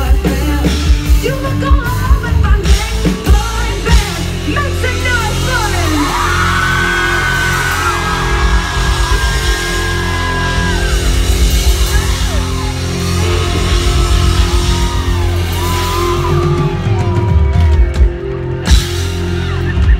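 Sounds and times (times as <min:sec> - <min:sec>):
live band playing: 0:00.0 - 0:19.9.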